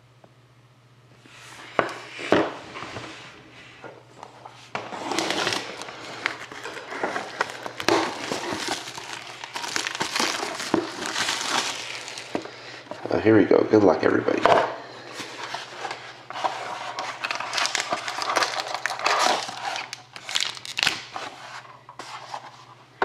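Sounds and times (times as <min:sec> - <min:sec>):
plastic wrap tearing and crinkling: 0:04.8 - 0:12.6, 0:16.5 - 0:21.3.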